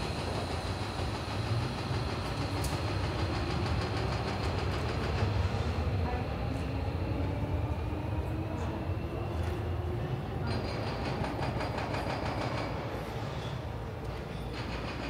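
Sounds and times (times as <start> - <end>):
electric train rumble: 0.0 - 15.0.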